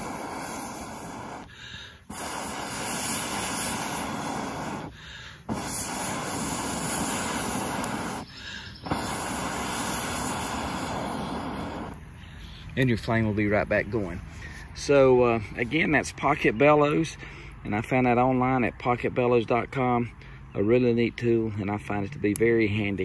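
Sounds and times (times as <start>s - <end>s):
breath blown through metal tube: 0.0s - 12.7s.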